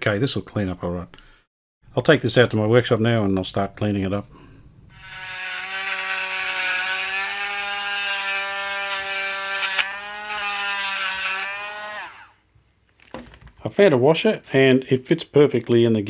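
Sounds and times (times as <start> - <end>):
rotary tool grinding metal: 5.0 - 12.4.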